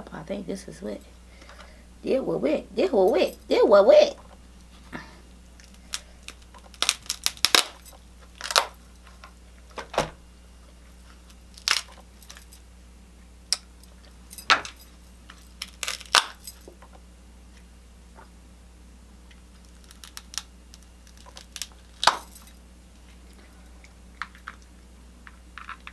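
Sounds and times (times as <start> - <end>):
shellfish shells cracking: 5.6 - 9.3, 11.2 - 12.6, 14.6 - 16.7, 19.4 - 22.5, 24.2 - 25.9.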